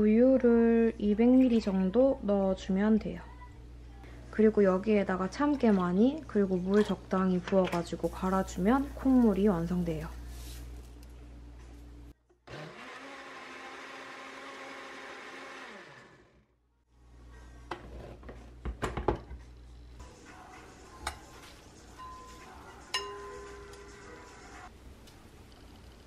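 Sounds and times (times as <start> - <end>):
blender running: 12.4 - 16.5.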